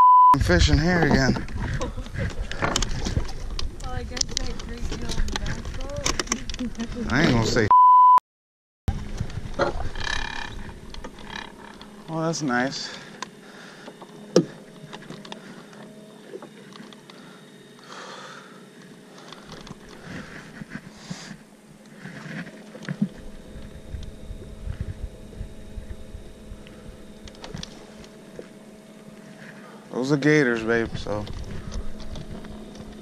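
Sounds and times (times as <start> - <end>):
electric trolling motor humming: 0.4 - 7.7, 8.9 - 33.0
low rumble: 23.0 - 28.6.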